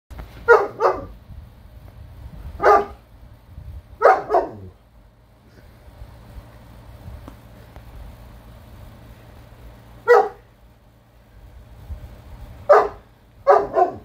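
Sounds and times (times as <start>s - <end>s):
dog barking: 0.4s - 1.1s, 2.6s - 3.0s, 4.0s - 4.8s, 10.0s - 10.5s, 12.7s - 14.0s.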